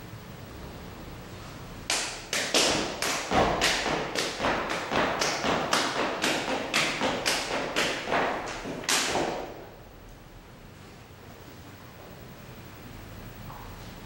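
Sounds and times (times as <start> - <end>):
body percussion hits: 1.9 - 9.8.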